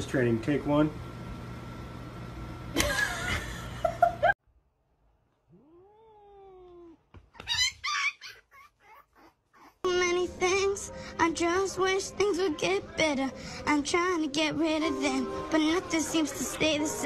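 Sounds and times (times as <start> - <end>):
cats meowing and yowling: 5.5 - 9.8.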